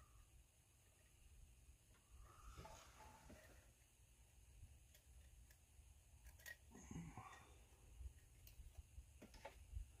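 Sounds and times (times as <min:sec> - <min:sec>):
faint scrape of hand work: 0:02.3 - 0:03.8.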